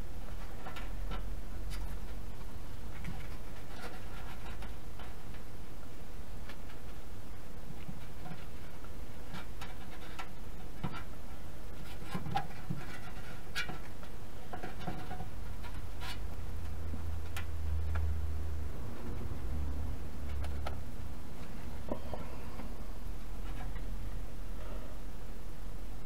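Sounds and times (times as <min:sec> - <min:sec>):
small clicks and scrapes: 0:00.2 - 0:05.5, 0:06.4 - 0:07.0, 0:07.6 - 0:18.1, 0:21.4 - 0:24.0
low hum: 0:15.3 - 0:26.0.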